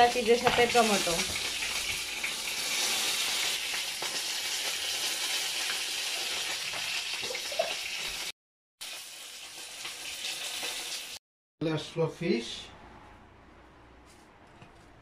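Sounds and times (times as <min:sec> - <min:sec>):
fish sizzling in a frying pan: 0:00.0 - 0:11.2.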